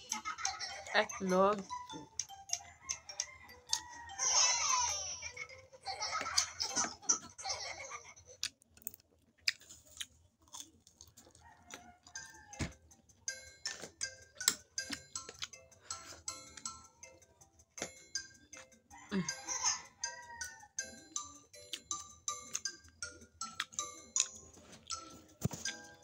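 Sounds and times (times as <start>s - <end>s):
chewing: 1.6s - 4.5s, 8.0s - 12.8s, 13.7s - 16.2s, 21.7s - 26.0s.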